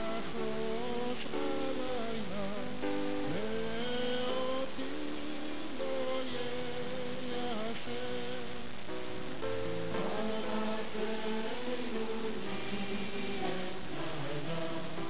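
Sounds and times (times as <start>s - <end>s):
mixed choir singing: 0.0s - 2.4s, 9.9s - 15.0s.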